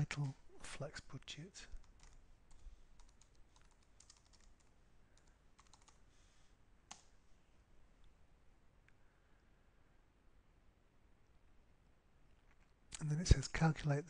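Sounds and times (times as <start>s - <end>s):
typing on computer keyboard: 1.8s - 2.2s, 3.0s - 6.0s.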